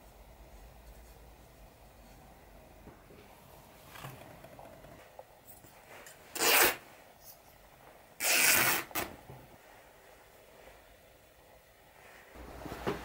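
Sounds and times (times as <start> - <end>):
cloth ripping: 6.3 - 6.8, 8.2 - 9.1
cloth rustling: 12.0 - 13.0.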